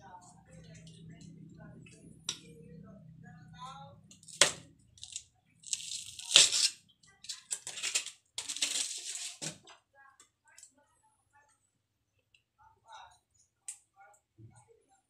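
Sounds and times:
aluminum foil crinkling: 4.2s - 9.8s.

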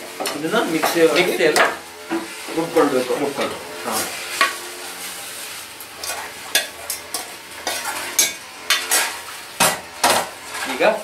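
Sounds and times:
metal spoon scraping a steel pan: 6.0s - 10.8s.

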